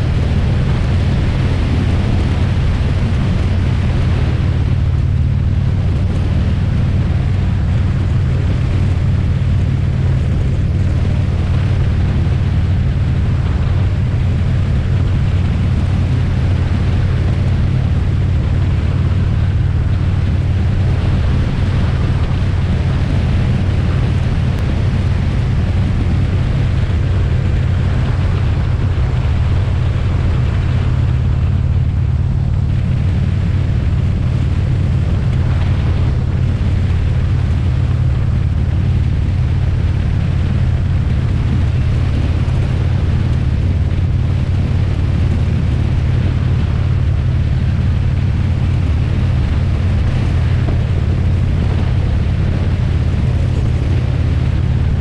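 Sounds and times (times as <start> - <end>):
motorcycle engine drone: 0.0 - 55.0
wind rush on microphone: 0.0 - 55.0.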